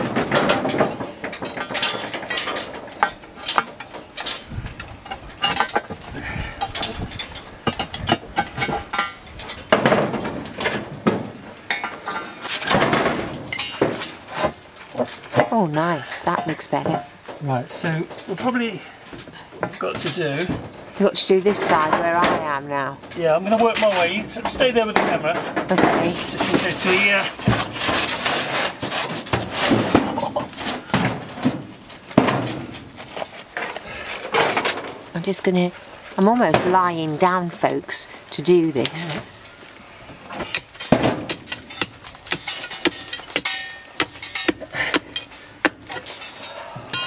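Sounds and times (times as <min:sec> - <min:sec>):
gritty scraping of rubble: 0:00.0 - 0:47.0
stone knocking on stone and steel: 0:40.5 - 0:46.0.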